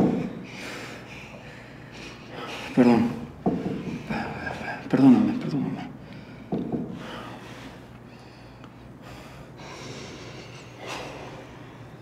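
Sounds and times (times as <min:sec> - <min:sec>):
person breathing heavily through nose: 0:06.0 - 0:12.0.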